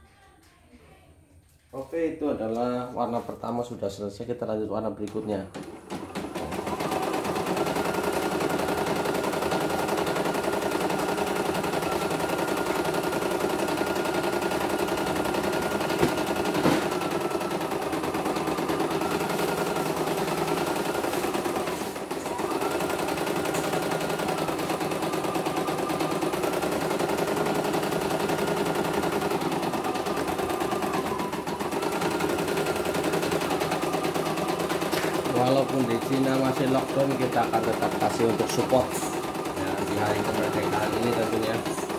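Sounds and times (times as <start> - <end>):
embroidery machine needle clatter: 5.0 - 41.9.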